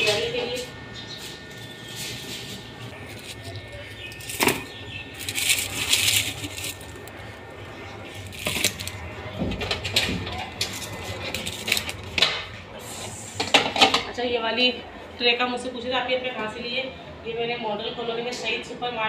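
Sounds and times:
onion skins rustling: 1.2s - 12.2s.

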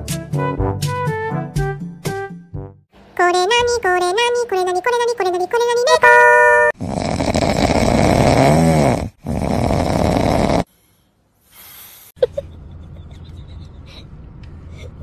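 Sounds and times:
person snoring loudly: 6.7s - 10.8s.

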